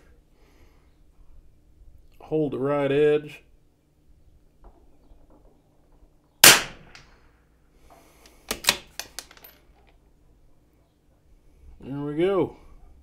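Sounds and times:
rifle shot: 6.4 - 7.0.

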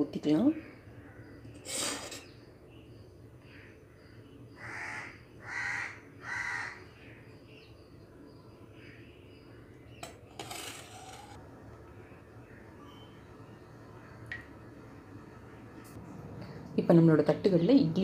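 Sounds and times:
crow cawing: 4.6 - 6.8.

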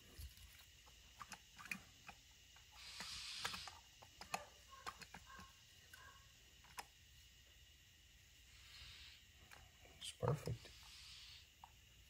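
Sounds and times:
short hiss: 2.8 - 3.8.

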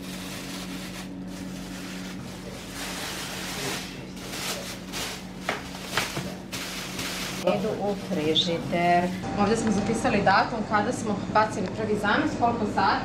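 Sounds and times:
plastic bag rustling and crinkling: 0.0 - 9.0
steady low hum: 0.0 - 13.0.

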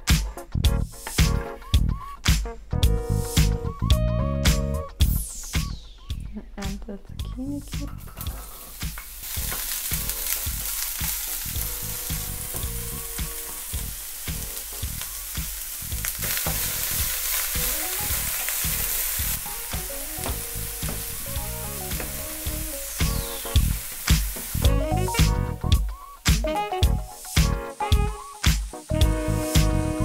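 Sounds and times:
light background music: 0.0 - 30.0
vegetables sizzling in oil: 8.0 - 30.0.

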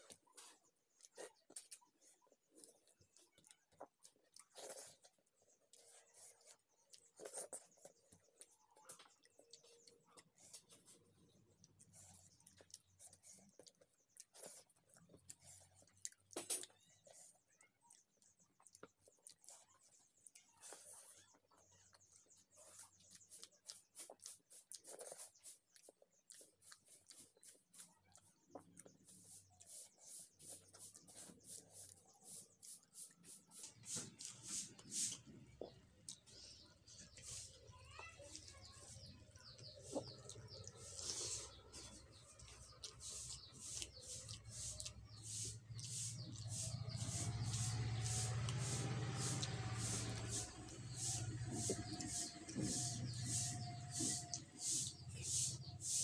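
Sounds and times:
chewing: 0.0 - 56.0
fingers mixing food on metal plate: 21.4 - 56.0.

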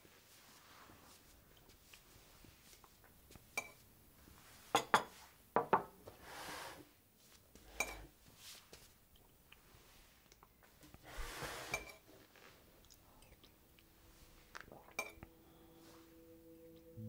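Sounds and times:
tableware clinking: 14.9 - 15.3.

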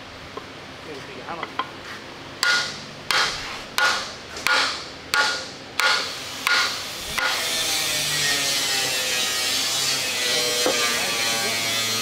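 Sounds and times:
hammer striking wooden block: 2.4 - 7.4.

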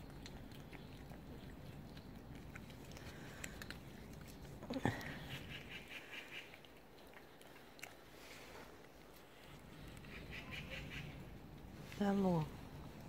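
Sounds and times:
cat licking and chewing: 0.0 - 12.0.

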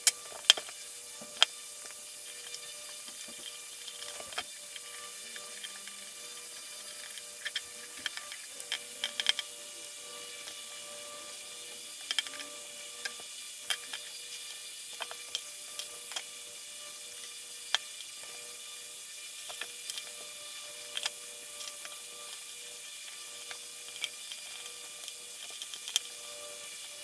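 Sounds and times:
small clicks and taps of phone parts: 6.8 - 9.5, 12.0 - 14.1, 15.0 - 16.3, 19.5 - 22.4, 23.4 - 26.2.

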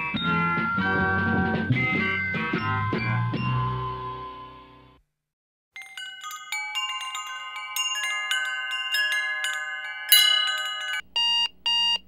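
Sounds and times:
bell-like chimes: 5.8 - 11.1.

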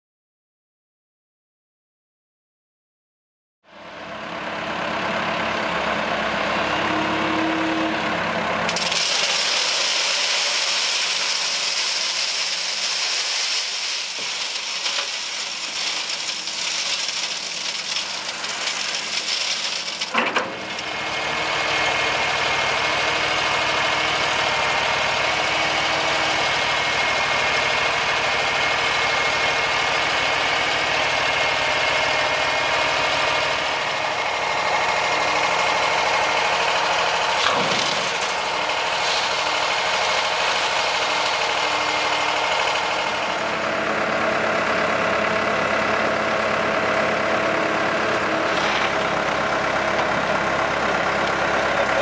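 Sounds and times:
machinery engine running: 3.8 - 52.0
sand and gravel pouring: 8.7 - 44.1, 48.2 - 52.0.

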